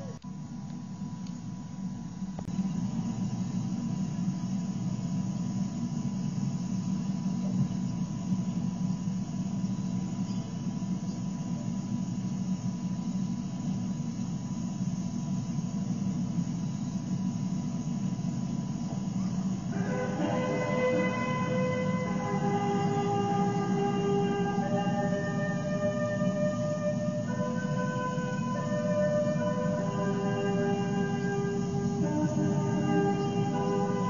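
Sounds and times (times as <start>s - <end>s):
faint constant tone: 0.0s - 34.0s
low background rumble: 0.0s - 34.0s.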